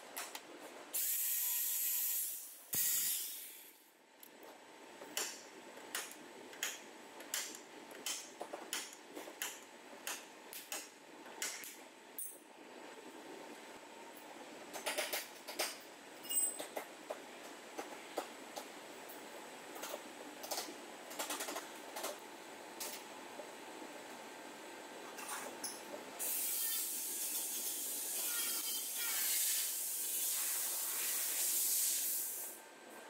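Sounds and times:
pneumatic grinder hissing: 1.0s - 3.7s
stud welder sharp snaps: 2.7s - 3.7s, 5.1s - 11.8s.

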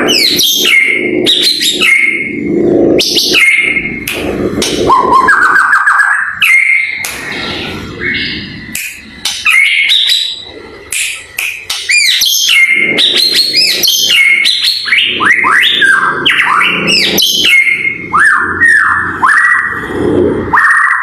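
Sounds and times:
bird singing whistles and clicks: 8.7s - 17.8s.

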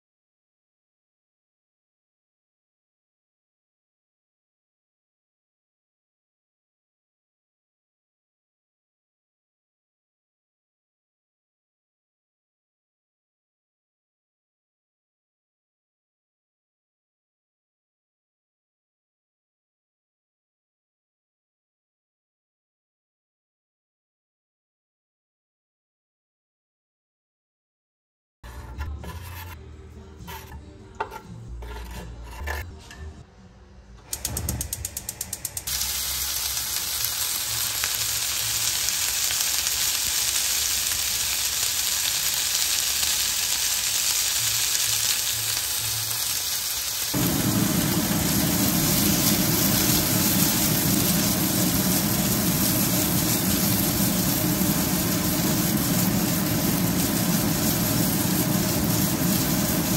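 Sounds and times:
food sizzling in a pan: 35.6s - 59.9s.

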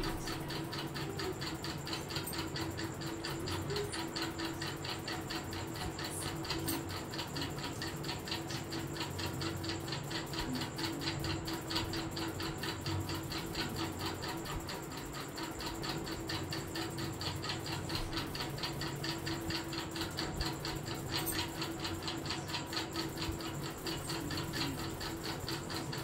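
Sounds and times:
rapid even ticking: 0.0s - 26.0s
steady low hum: 0.0s - 26.0s.

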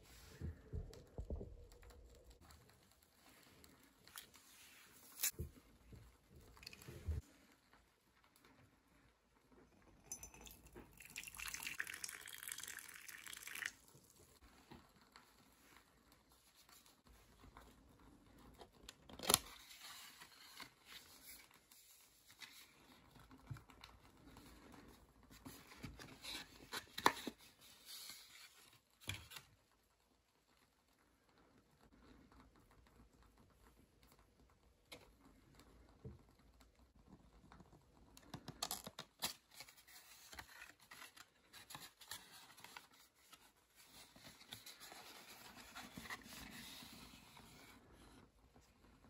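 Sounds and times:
paper and card rustling: 1.6s - 5.6s, 18.4s - 23.0s, 25.3s - 29.5s, 38.3s - 48.2s
water pouring into a mug: 10.3s - 14.2s.

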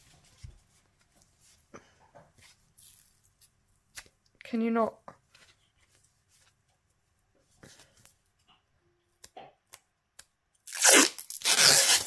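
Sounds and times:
plastic wrap tearing and crinkling: 10.7s - 12.0s.

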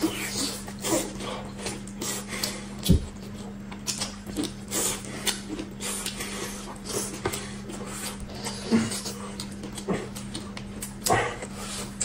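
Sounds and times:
faint steady hum: 0.0s - 12.0s
chewing clicks and smacks: 1.7s - 6.3s, 8.9s - 12.0s.

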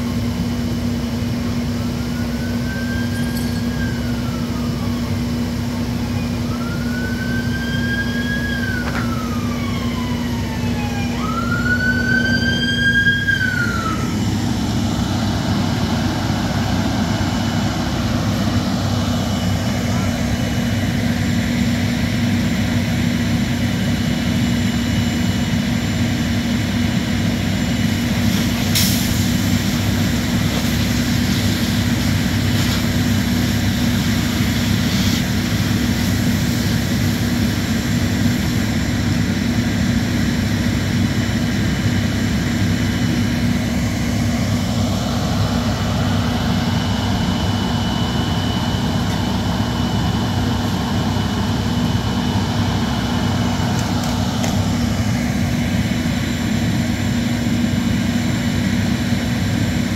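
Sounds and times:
diesel engine droning steadily: 0.0s - 59.9s.

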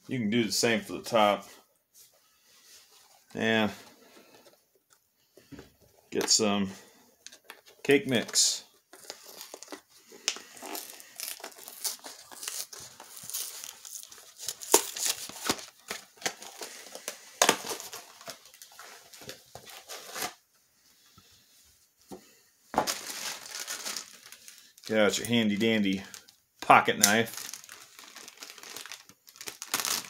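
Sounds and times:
cardboard box tearing and crinkling: 10.5s - 16.6s, 27.4s - 30.0s.

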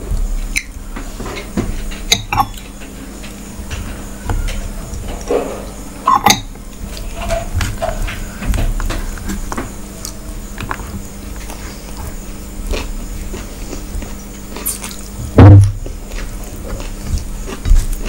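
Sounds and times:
chewing: 6.8s - 15.2s, 15.8s - 18.0s.

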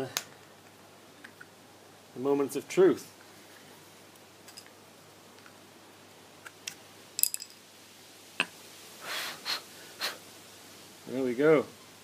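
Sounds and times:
small hard objects clicking: 6.4s - 7.6s.

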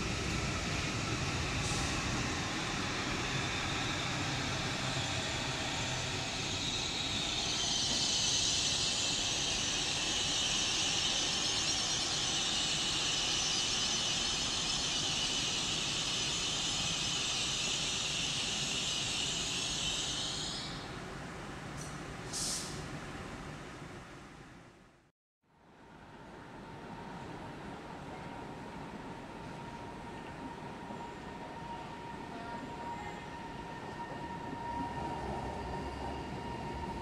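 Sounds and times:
high hiss: 0.0s - 21.0s, 21.8s - 22.9s
train rumble: 0.0s - 24.1s.

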